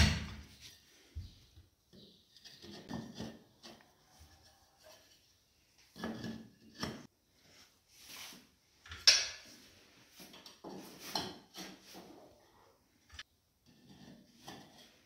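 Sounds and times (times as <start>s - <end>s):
tiles scraping and knocking: 1.9s - 7.1s, 8.8s - 12.4s, 13.1s - 15.0s.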